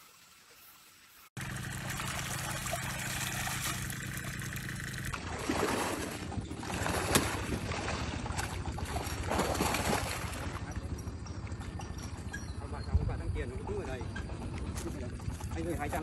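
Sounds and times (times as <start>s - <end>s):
water sloshing in creek: 0.0s - 12.7s, 13.4s - 16.0s
sharp splash: 1.4s - 10.7s.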